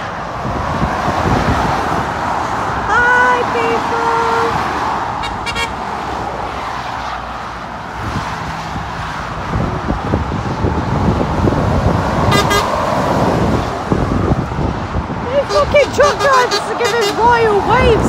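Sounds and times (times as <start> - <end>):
traffic passing: 0.0 - 18.0
lorry engine: 2.7 - 5.8
horn pulsing toots: 5.2 - 5.8, 12.3 - 12.8.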